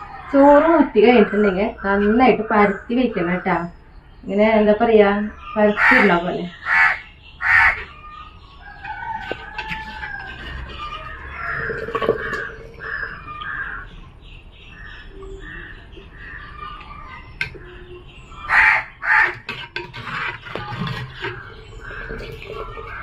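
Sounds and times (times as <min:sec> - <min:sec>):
crows cawing: 0:05.7 - 0:14.1, 0:14.7 - 0:23.0.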